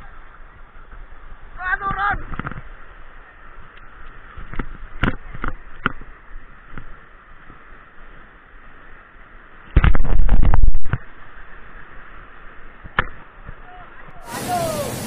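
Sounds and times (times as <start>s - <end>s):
river rapid rushing: 11.1s - 15.0s.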